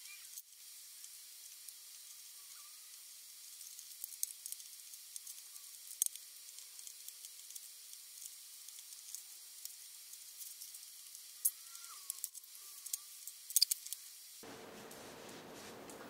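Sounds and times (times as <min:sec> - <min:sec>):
steady hiss: 0:00.0 - 0:16.0
small screws clicking: 0:03.6 - 0:14.1.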